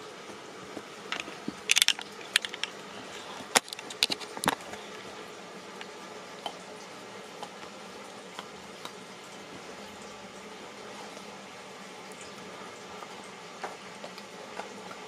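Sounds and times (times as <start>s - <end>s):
dog chewing and crunching: 0.7s - 5.0s, 12.9s - 15.0s.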